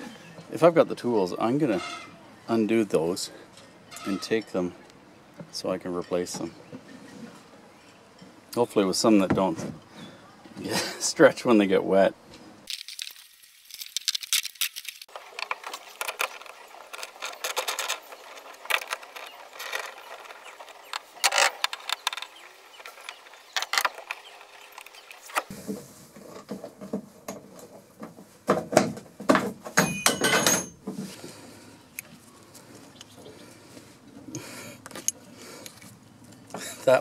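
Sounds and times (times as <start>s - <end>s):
hand tools clicking and rattling: 13.8s - 25.5s.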